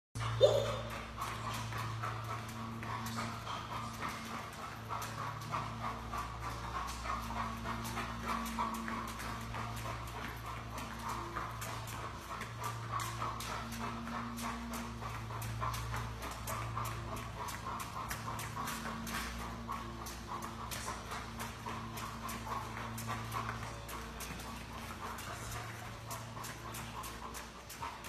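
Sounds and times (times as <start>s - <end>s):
dog panting: 0.2s - 28.0s
paws clicking on floor: 0.2s - 28.0s.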